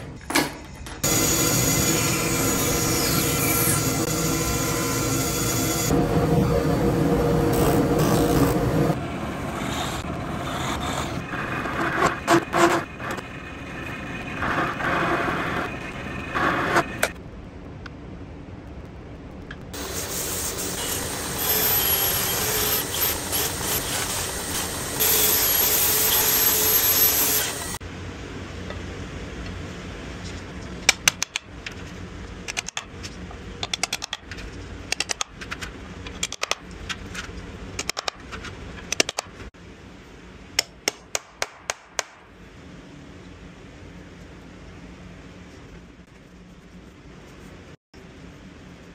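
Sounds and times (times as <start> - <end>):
power tool running loudly: 1.0 - 9.0.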